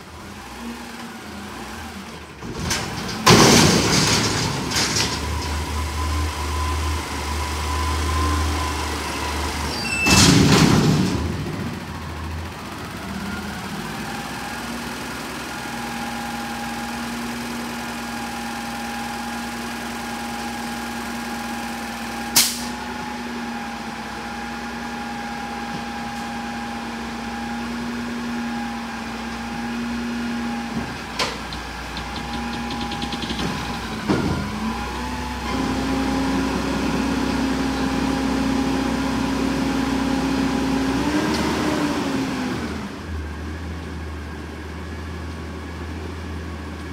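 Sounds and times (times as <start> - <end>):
garbage truck engine whine: 0.0 - 46.9.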